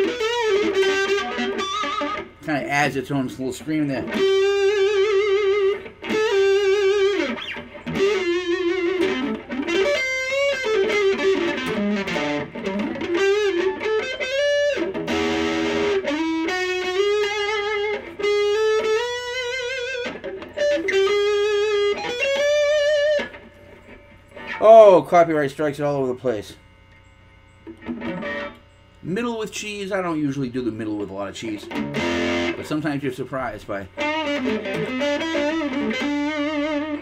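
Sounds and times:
electric guitar lead melody: 0:00.0 - 0:25.0, 0:27.4 - 0:29.1, 0:31.1 - 0:37.0.

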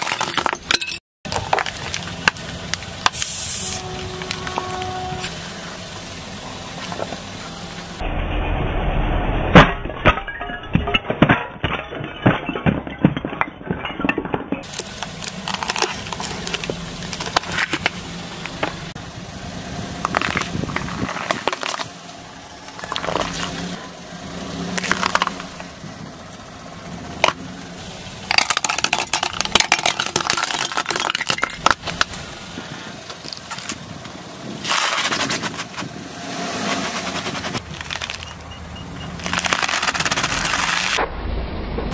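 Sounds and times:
clay cups cracking under tyre: 0:14.6 - 0:18.8, 0:24.7 - 0:25.8, 0:28.3 - 0:32.2, 0:37.6 - 0:38.4, 0:39.1 - 0:41.0
vegetables crunching under tyre: 0:36.6 - 0:38.4, 0:39.1 - 0:41.0.

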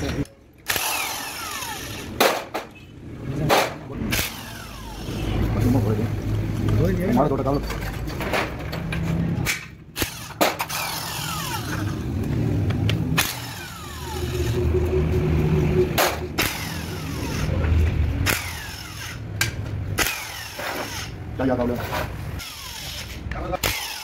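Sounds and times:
power tool whining: 0:00.6 - 0:02.2, 0:10.0 - 0:12.4, 0:13.2 - 0:19.3.

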